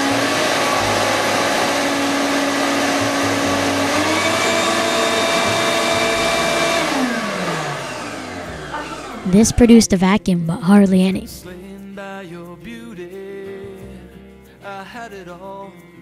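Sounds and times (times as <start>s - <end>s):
shop vac motor whine: 0.0s - 9.7s.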